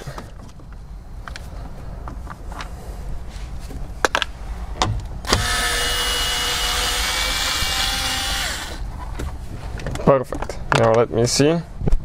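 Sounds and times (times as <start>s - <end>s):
electric screwdriver motor whine: 5.3s - 8.8s.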